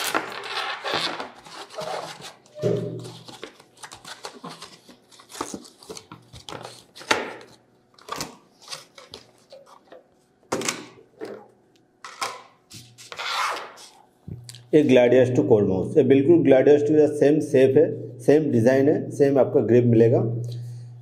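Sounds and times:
cardboard and plastic scraping: 0.0s - 10.0s.

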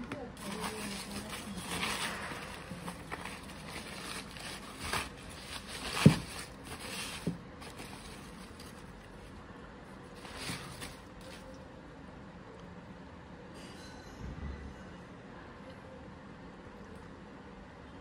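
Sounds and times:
newspaper rustling and crackling: 0.4s - 9.3s, 10.1s - 11.5s.

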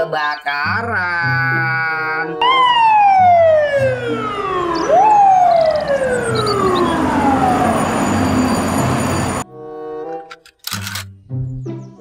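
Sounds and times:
siren wailing: 2.4s - 9.4s
low vehicle rumble: 3.0s - 9.4s.

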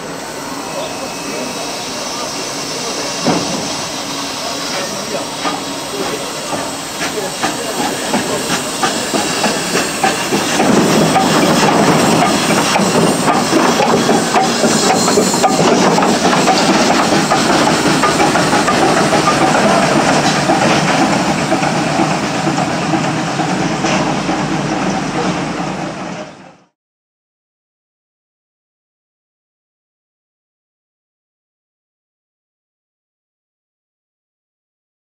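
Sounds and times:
steam locomotive hissing: 0.0s - 26.8s.

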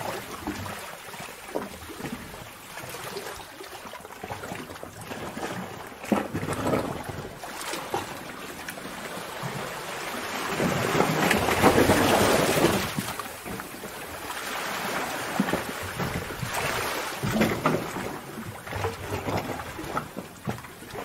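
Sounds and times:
water splashing: 0.0s - 21.0s
sea waves crashing on rocks: 5.3s - 21.0s.

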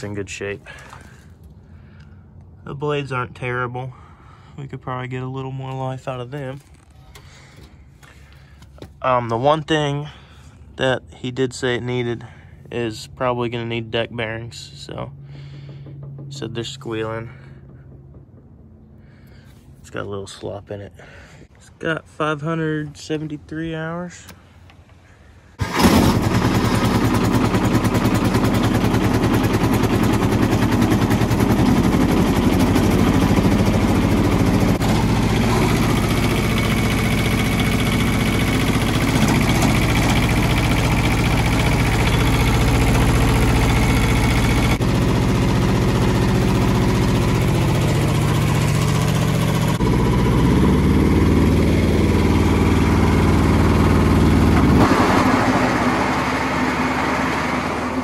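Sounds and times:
small diesel engine idling: 0.6s - 2.5s, 25.5s - 58.0s.

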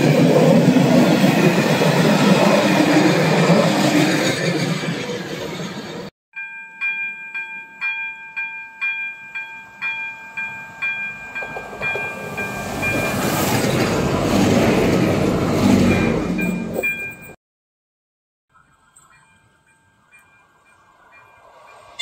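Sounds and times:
train rumbling past: 0.0s - 6.1s, 10.7s - 17.4s, 18.6s - 22.0s.

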